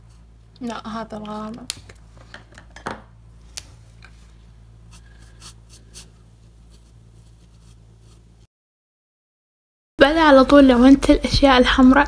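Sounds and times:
steady low hum: 0.0 - 8.5
marker scratching on paper: 4.9 - 8.3.

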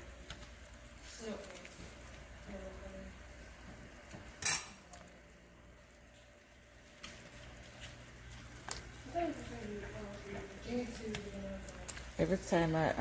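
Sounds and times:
metallic clink against pot: 4.4 - 4.8.

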